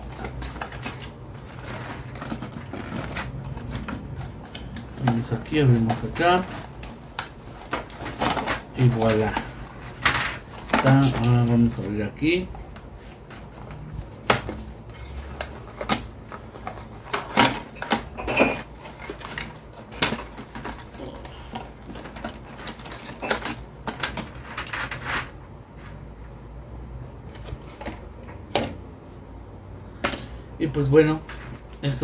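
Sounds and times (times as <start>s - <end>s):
cardboard rustling: 0.0s - 25.4s.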